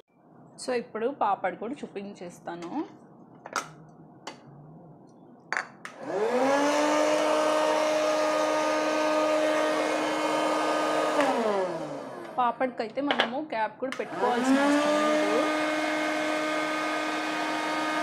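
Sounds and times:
fan motor whirring: 6.0 - 12.5, 14.0 - 18.0.

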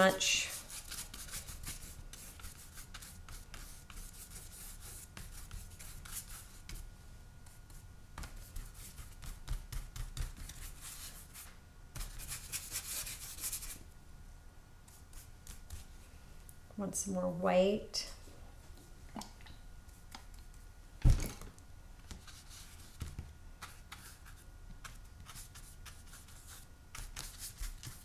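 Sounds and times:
paintbrush scratching on paper: 0.1 - 6.8, 8.3 - 13.8, 22.2 - 28.0.

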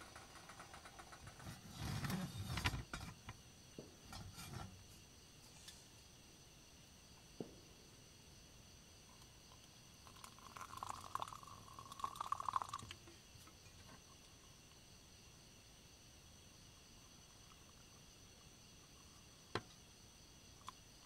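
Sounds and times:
insect chirring: 0.0 - 21.0
water pouring into mug: 10.0 - 13.0.

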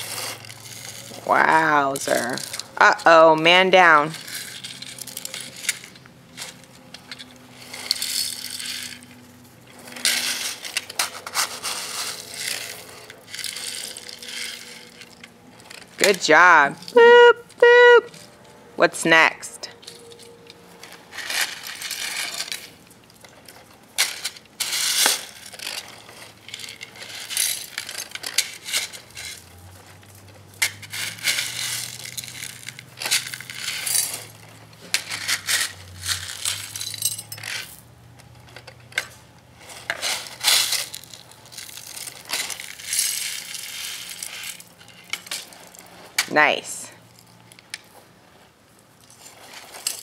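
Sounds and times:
gravel crunching and rattling: 19.8 - 46.2.

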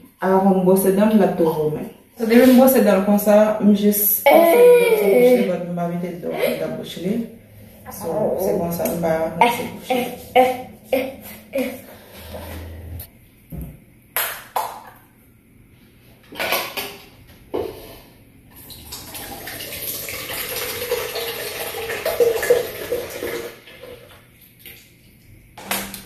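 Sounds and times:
water running: 18.5 - 26.0.

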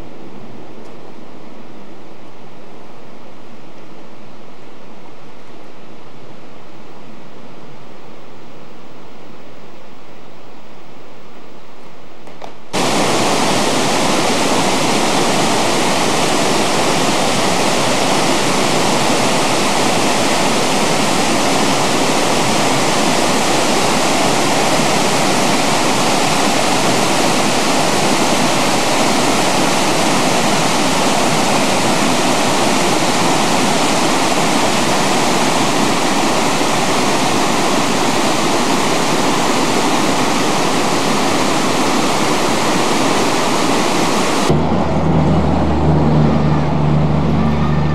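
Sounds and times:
waterfall rushing over rocks: 12.8 - 44.8.

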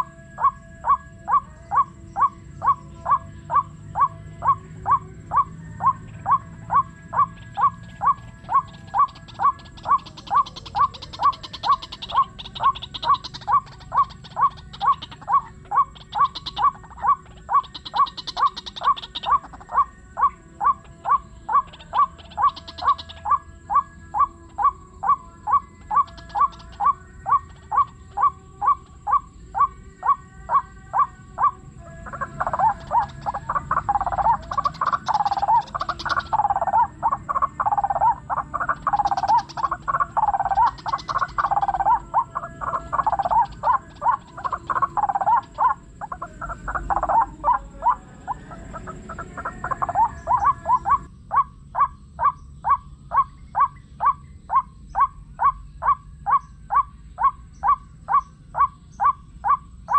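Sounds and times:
harsh bird calls: 0.0 - 59.9.

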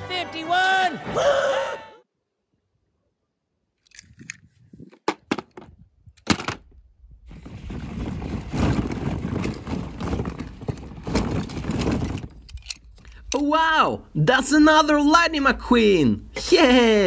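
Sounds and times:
plastic balls clattering: 7.3 - 13.3.

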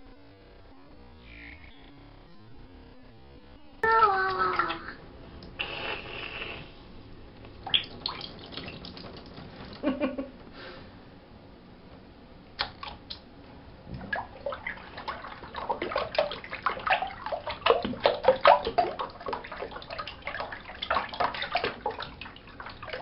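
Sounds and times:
water drips: 7.5 - 9.8, 13.9 - 23.0
bath water draining gurgling: 7.5 - 10.2, 13.8 - 23.0
hand swishing water: 7.6 - 10.0, 13.9 - 23.0.

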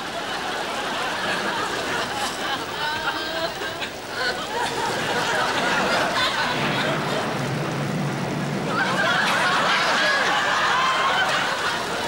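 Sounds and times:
audience laughing: 0.0 - 12.0.

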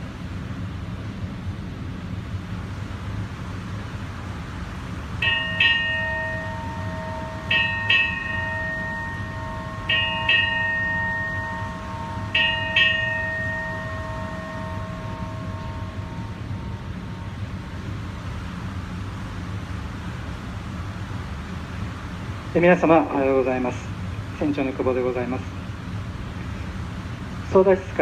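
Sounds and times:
steady low hum: 0.0 - 28.0
ship's bell strikes: 5.1 - 18.7.

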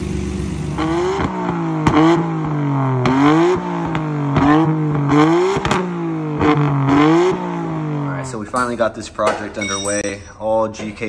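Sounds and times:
car engine revving: 0.0 - 8.6
exhaust cracks: 0.0 - 9.6.

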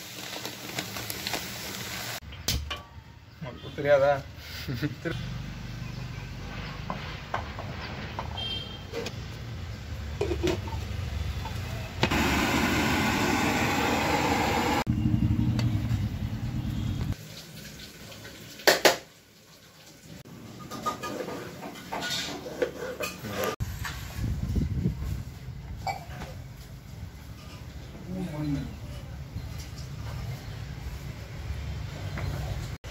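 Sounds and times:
water boiling and hissing: 0.0 - 2.2, 12.0 - 14.9
gas burner rumble: 11.5 - 17.2.

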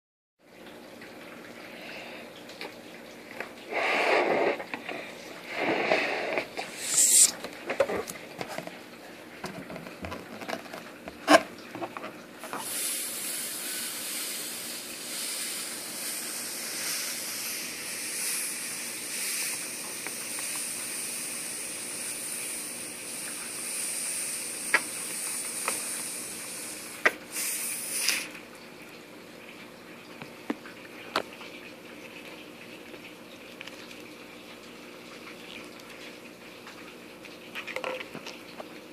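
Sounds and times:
air hissing out of balloon: 3.7 - 4.7, 5.4 - 7.4, 12.5 - 28.4.

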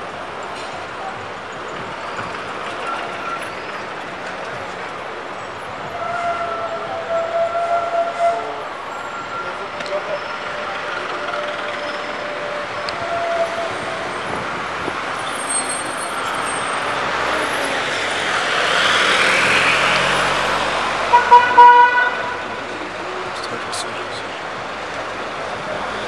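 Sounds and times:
bus passing: 0.0 - 26.0
city street traffic: 0.0 - 26.0
vehicle horn toots: 21.1 - 22.6.

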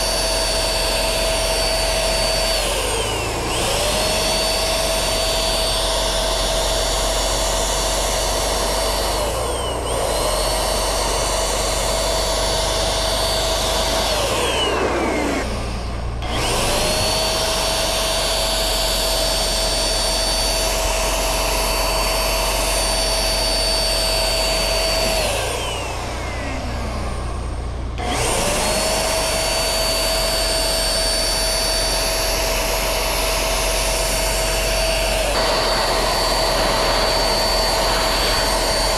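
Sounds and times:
electric paint spray gun whine: 0.0 - 38.9.

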